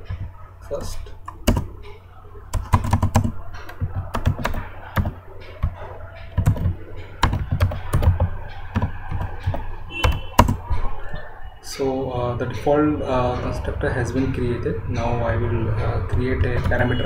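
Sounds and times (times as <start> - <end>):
steady low hum: 0.0 - 17.0
typing on a keyboard: 0.8 - 1.8, 2.5 - 10.7.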